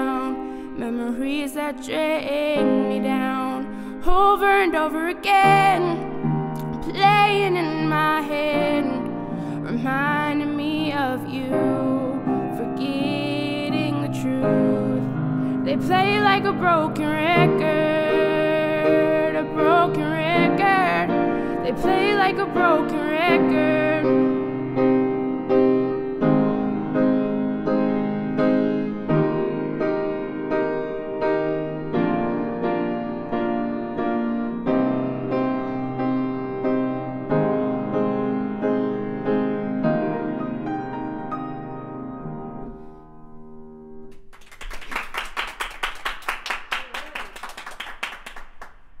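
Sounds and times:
upright piano playing chords: 0.0 - 44.3
people clapping: 44.1 - 49.0.

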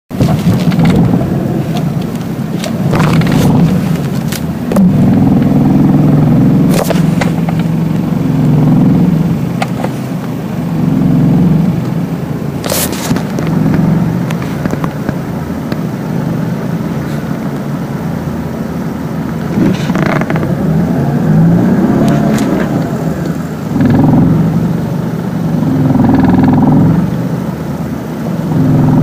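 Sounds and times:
car engine idling roughly: 0.1 - 20.5, 22.2 - 29.0.

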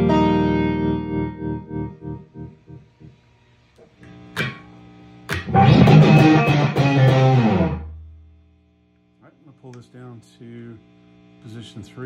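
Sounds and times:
electric guitar strummed chords: 0.0 - 2.8, 4.4 - 4.7, 5.3 - 8.2
overdriven electric guitar notes: 0.0 - 2.8, 5.3 - 8.2.

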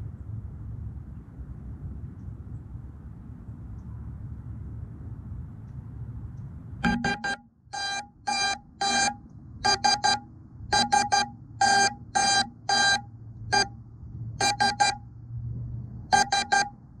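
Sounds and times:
high-pitched buzzer beeps: 6.8 - 13.7, 14.4 - 15.0, 16.1 - 16.8.

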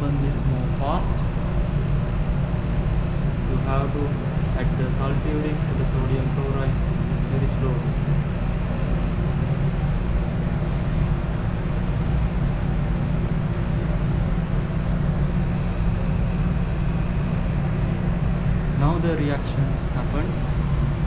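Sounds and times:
lab machinery droning: 0.0 - 21.0.

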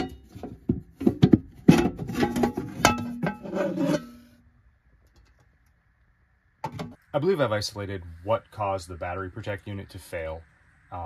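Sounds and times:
metal panel knocks and clatter: 0.0 - 3.5, 6.6 - 7.0.

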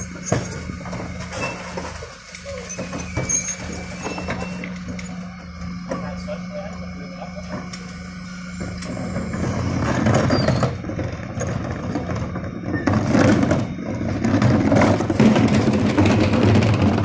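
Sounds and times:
wheelie bins wheeled on tarmac: 0.0 - 17.0
scraping and clattering: 8.8 - 17.0.

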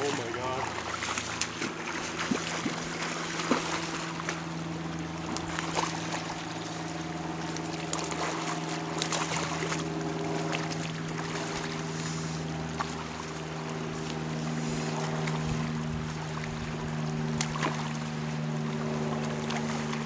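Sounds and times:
fish splashing at surface: 0.0 - 4.5, 7.6 - 13.0
low hum: 0.0 - 20.0.

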